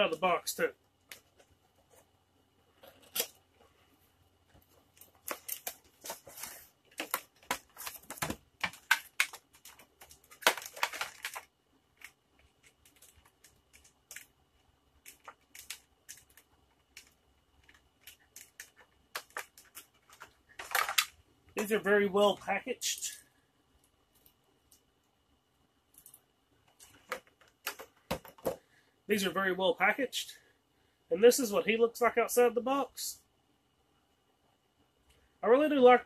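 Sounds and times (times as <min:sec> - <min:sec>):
plastic wrap crinkling and tearing: 0:04.9 - 0:14.3.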